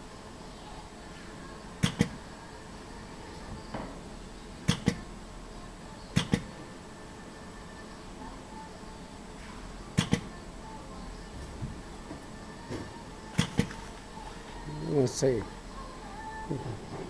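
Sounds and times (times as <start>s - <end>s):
steady background hum: 0.0s - 17.0s
sharp clicks: 1.8s - 2.2s, 4.7s - 5.0s, 6.2s - 6.5s, 10.0s - 10.3s.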